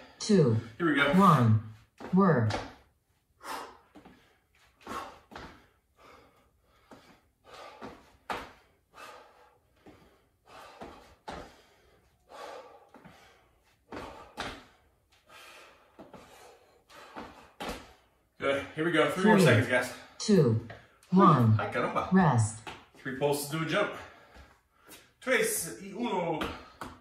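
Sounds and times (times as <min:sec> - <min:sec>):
hard breathing: 0:03.3 - 0:18.4, 0:23.8 - 0:25.2.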